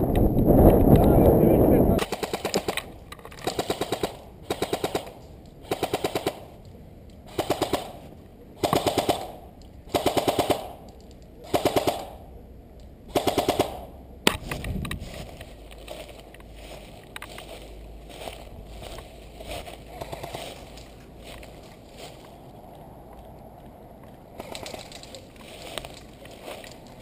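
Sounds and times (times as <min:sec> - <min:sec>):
airsoft gun full-auto bursts: 0:02.0 - 0:02.8, 0:03.4 - 0:06.5, 0:07.3 - 0:08.0, 0:08.6 - 0:10.8, 0:11.4 - 0:12.2, 0:13.1 - 0:13.9.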